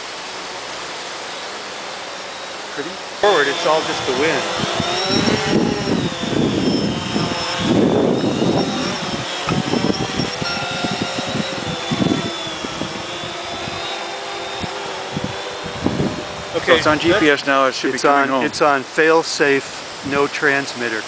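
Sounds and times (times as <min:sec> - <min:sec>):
quadcopter motors whining: 0:00.0 - 0:21.0
wind rumbling on microphone: 0:03.2 - 0:18.9.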